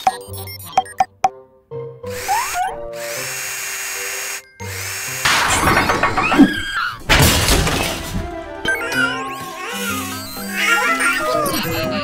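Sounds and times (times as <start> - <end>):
cordless drill whirring: 2.1 - 5.3
loud crashing clatter: 5.2 - 8.5
children's background music: 7.9 - 12.0.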